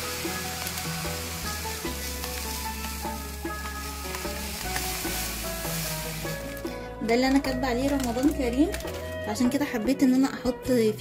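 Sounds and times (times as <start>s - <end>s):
sugar grains trickling into jar: 0.0s - 6.8s
background music: 0.0s - 11.0s.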